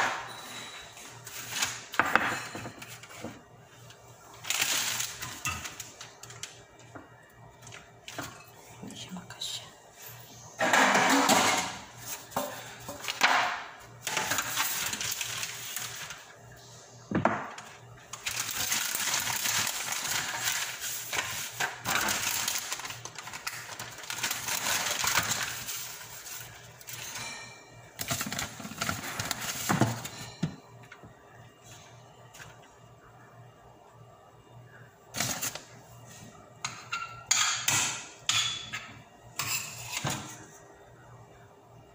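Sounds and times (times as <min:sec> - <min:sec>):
food rustling and scraping: 0:11.9 - 0:13.2, 0:14.0 - 0:16.7, 0:17.6 - 0:30.4.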